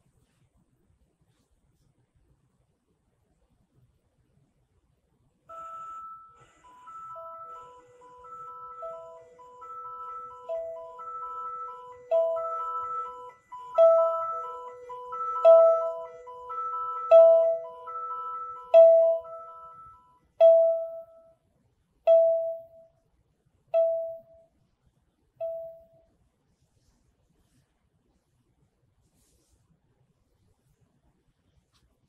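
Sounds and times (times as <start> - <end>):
ringing chime note: 5.5 - 21.3.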